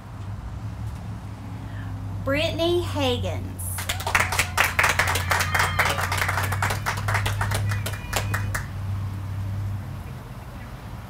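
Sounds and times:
crowd clapping: 3.7 - 8.8.

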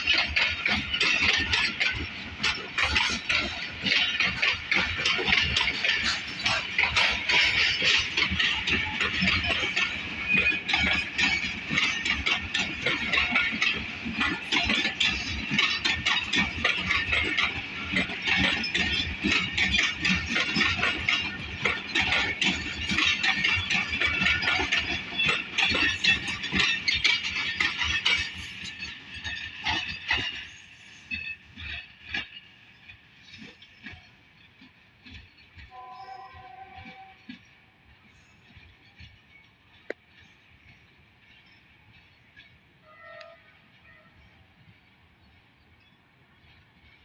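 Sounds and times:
train wheels clicking on rails: 0.0 - 47.0.

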